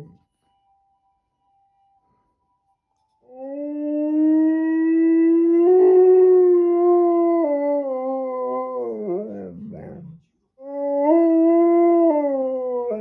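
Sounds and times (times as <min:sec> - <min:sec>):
dog howling: 0:03.3 - 0:13.0.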